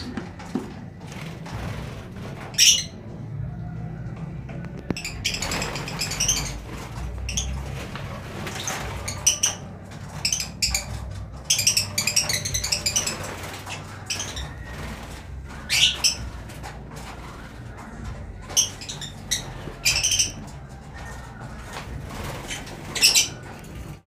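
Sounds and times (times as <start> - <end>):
lovebirds chirping: 4.8 - 24.0.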